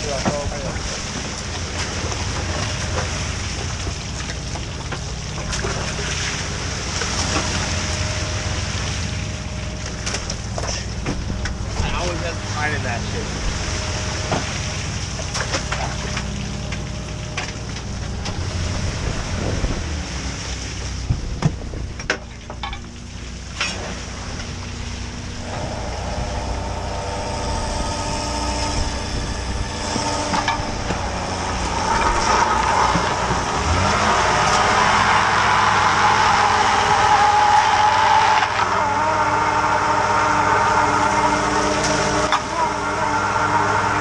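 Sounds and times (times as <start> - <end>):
boat engine and hydraulics hum: 0.0 - 44.0
deck hose spraying water: 0.0 - 44.0
hydraulic hauler whine: 0.0 - 44.0.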